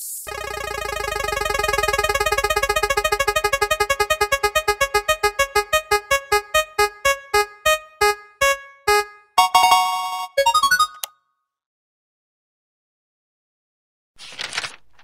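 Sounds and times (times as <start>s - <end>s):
prize wheel electronic ticks: 0.3s - 11.1s.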